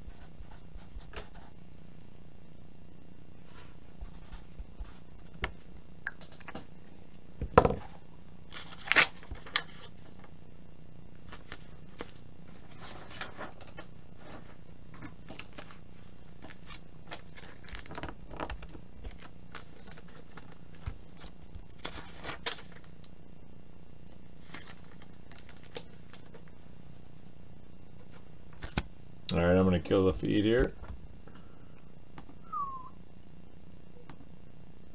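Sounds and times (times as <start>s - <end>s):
steady low hum: 0.0s - 34.9s
paper rustling: 8.5s - 10.3s, 11.2s - 22.9s, 24.4s - 27.3s.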